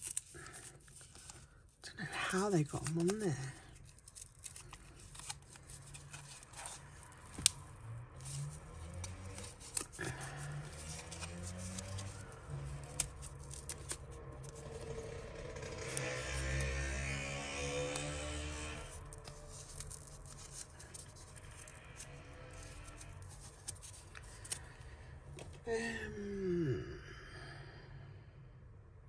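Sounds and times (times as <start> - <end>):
metal earrings scraping and clicking: 2.9 - 10.0, 17.9 - 24.6.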